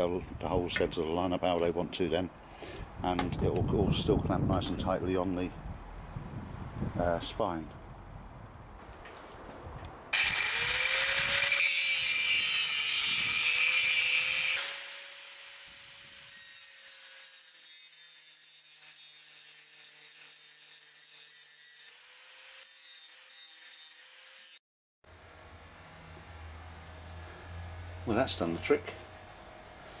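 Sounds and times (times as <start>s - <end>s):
power tool cutting metal: 10.1s - 26.6s.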